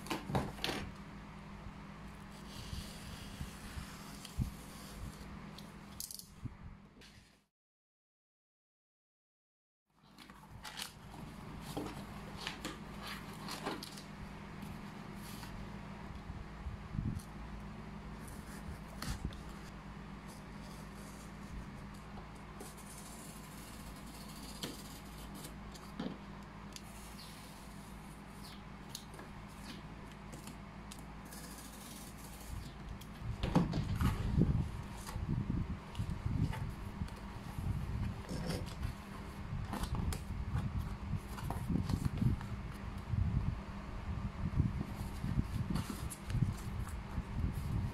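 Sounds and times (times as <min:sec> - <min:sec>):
low steady hum: 0:00.0 - 0:07.3, 0:10.0 - 0:47.9
cardboard rustling and scraping: 0:10.1 - 0:15.6, 0:31.2 - 0:42.7, 0:44.9 - 0:47.9
cardboard scraping and crinkling: 0:10.2 - 0:14.1, 0:37.4 - 0:42.3.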